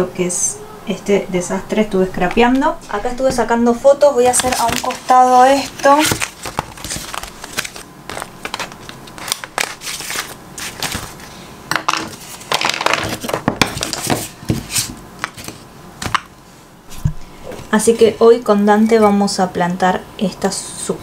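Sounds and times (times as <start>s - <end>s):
paper rustling and crinkling: 4.2s - 11.4s, 12.0s - 16.2s.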